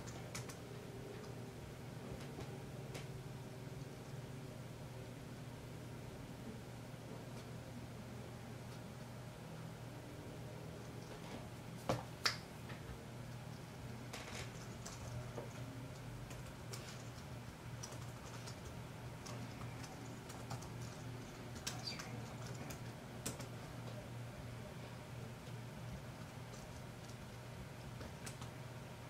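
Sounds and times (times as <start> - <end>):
keyboard typing: 0.0 - 0.6, 14.2 - 23.6, 28.0 - 28.5.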